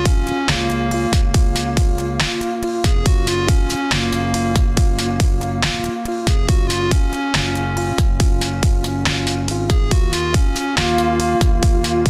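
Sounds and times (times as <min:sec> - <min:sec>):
deep kick drums: 0:00.0 - 0:00.3, 0:01.2 - 0:02.2, 0:02.8 - 0:03.8, 0:04.6 - 0:07.1, 0:08.0 - 0:09.1, 0:09.7 - 0:10.6, 0:11.4 - 0:12.0
crisp hi-hat hits: 0:00.0 - 0:12.0
held synth notes: 0:00.0 - 0:12.0.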